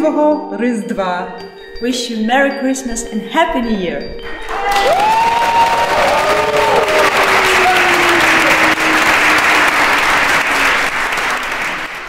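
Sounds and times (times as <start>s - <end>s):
crowd applauding: 4.2s - 12.0s.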